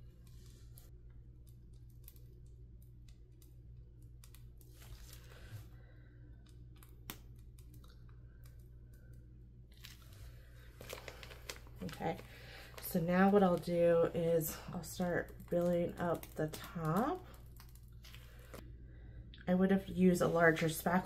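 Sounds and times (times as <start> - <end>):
steady low hum: 0.0 - 21.0
plastic piping bag crinkling: 9.7 - 18.6.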